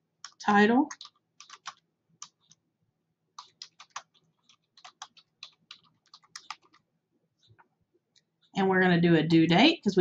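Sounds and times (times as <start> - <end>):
faint keyboard typing: 0.2 - 2.7, 3.3 - 8.6.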